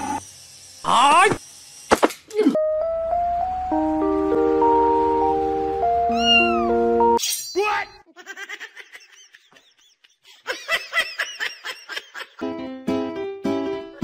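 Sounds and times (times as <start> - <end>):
background music: 2.6 - 7.2, 12.4 - 14.0
cat chirping mews: 6.1 - 6.7
cat meowing loudly: 6.1 - 6.7.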